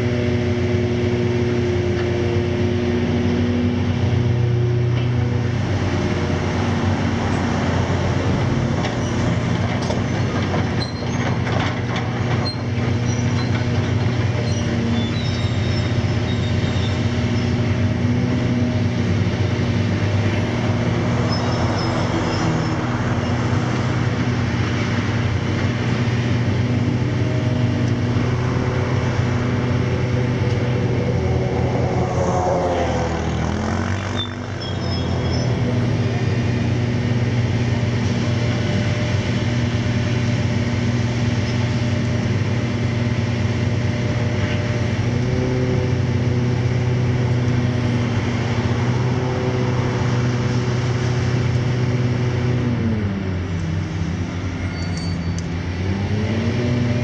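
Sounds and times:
excavator diesel engines running: 0.0 - 57.0
metallic squeals: 14.4 - 17.5, 21.2 - 22.8, 33.9 - 35.9, 54.6 - 55.5.

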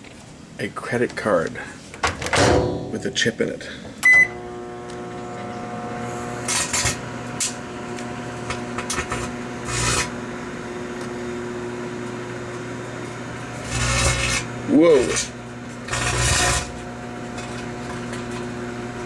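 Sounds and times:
microwave oven humming: 3.9 - 19.0
microwave oven beep: 4.0 - 4.6.

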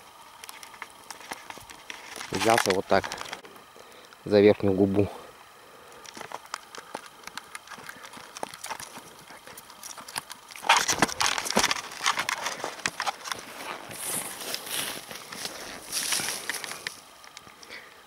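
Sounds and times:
twigs and branches crackling: 0.0 - 4.4, 5.8 - 18.0
footsteps crunching through snow: 10.5 - 17.0.

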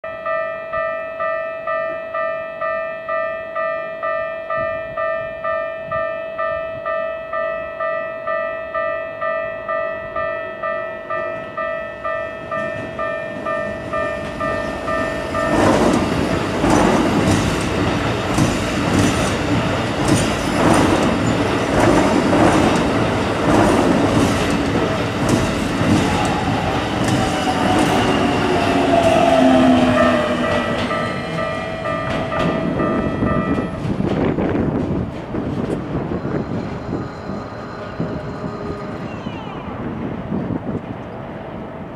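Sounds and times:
train whine falling in pitch: 9.0 - 34.1, 35.9 - 40.4
train wheels clattering over rail joints: 12.6 - 36.8
level crossing bell ringing: 30.0 - 33.8.

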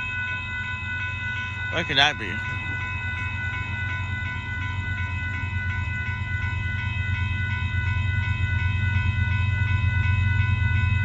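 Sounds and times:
crossing warning bell ringing: 0.0 - 11.0
diesel train rumble: 0.0 - 11.0.

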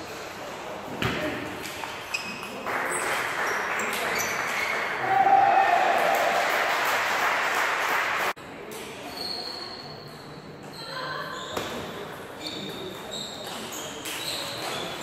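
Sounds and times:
voices in echoing hall: 0.0 - 15.0.

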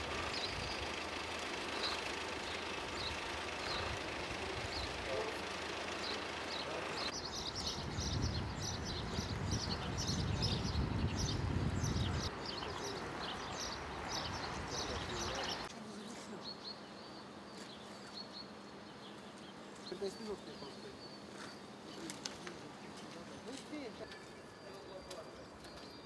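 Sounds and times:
low traffic rumble: 0.0 - 16.1
small birds chirping: 0.0 - 26.0.

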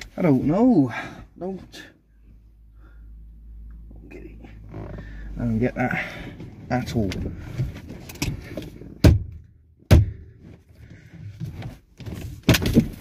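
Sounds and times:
steering wheel knocks and clunks: 6.0 - 13.0.

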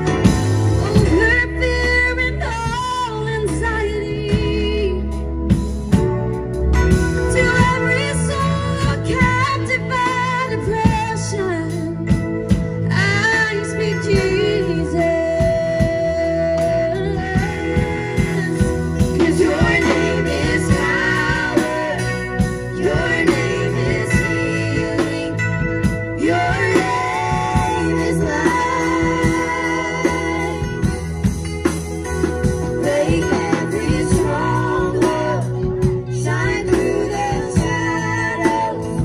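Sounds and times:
drum kit: 0.0 - 39.0
electric bass guitar: 0.0 - 39.0
electric keyboard: 0.0 - 39.0
girls singing: 17.5 - 25.5, 26.2 - 31.0, 32.8 - 39.0.

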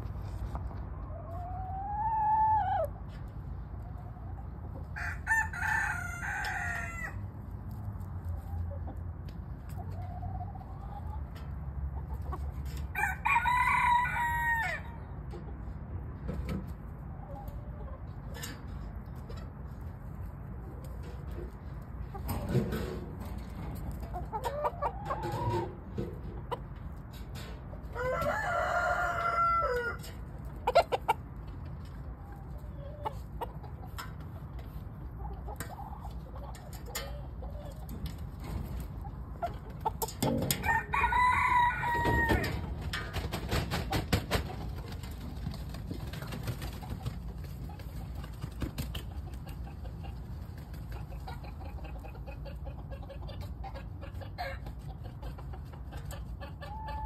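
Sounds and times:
chickens clucking: 0.0 - 57.0
rooster crowing: 5.0 - 7.2, 12.9 - 15.0, 28.0 - 30.0, 40.6 - 42.6.

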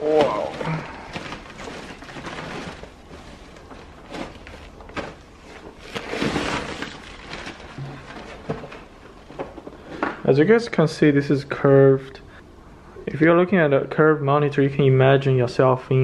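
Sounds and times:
packaging rustling and scraping: 0.0 - 10.1.

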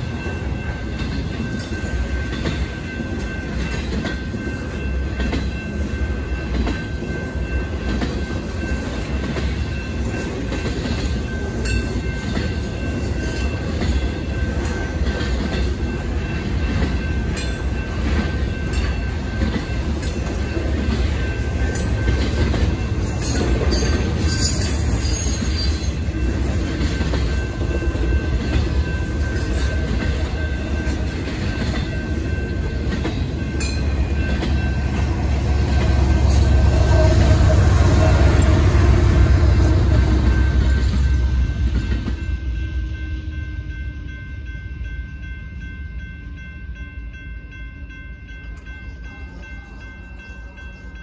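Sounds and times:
freight train rumble: 0.0 - 51.0.

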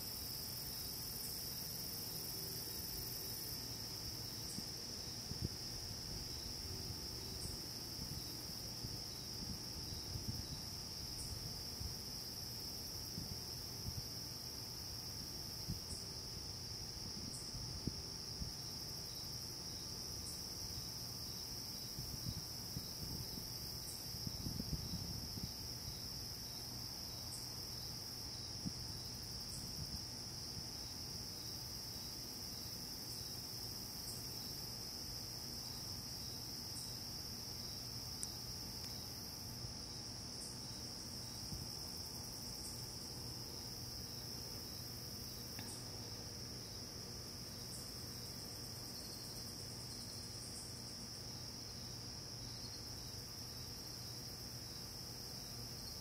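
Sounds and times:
insects trilling: 0.0 - 56.0
faint ticks: 38.2 - 39.0, 45.5 - 45.8.

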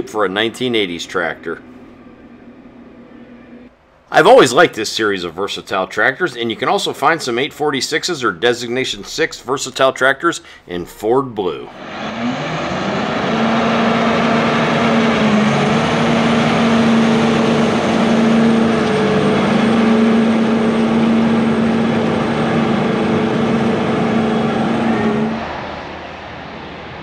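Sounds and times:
tractor diesel engine running: 11.7 - 25.9.

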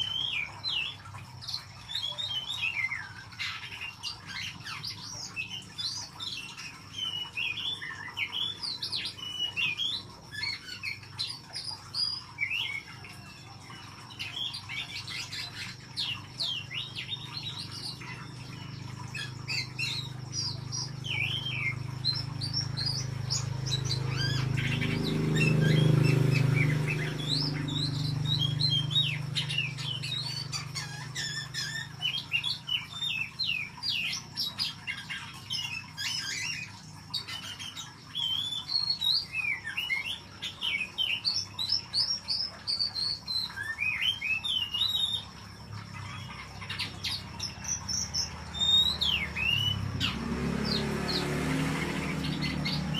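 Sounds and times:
bird whistles and chirps: 0.0 - 52.9.

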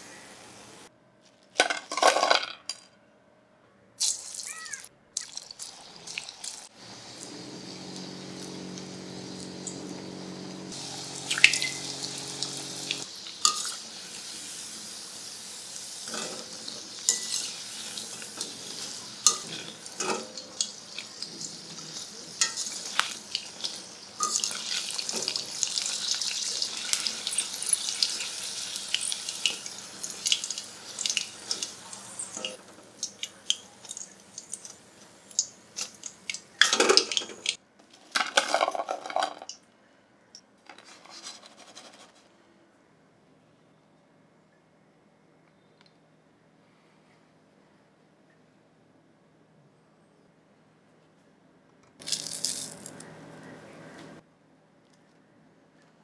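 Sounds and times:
food deep-frying in oil: 4.0 - 37.6, 52.0 - 53.0
metal strainer clattering on wok: 18.8 - 20.7.

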